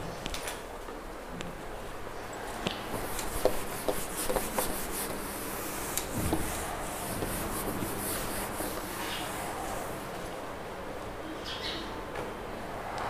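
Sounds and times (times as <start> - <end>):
cloth rubbing on whiteboard: 2.9 - 10.2.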